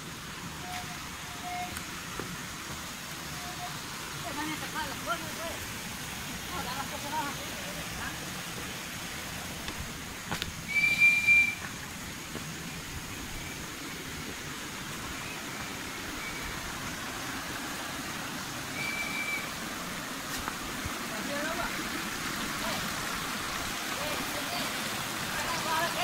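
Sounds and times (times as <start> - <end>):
steady rushing hiss: 0.0 - 26.0
short high whistles: 10.7 - 11.6, 18.8 - 19.5.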